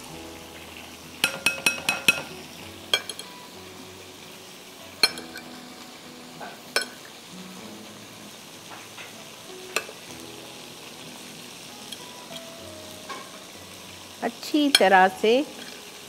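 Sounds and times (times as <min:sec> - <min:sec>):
cutlery clinking on ceramic plate: 0:01.2 - 0:02.3, 0:02.9 - 0:03.3, 0:05.0 - 0:05.5, 0:06.4 - 0:07.0.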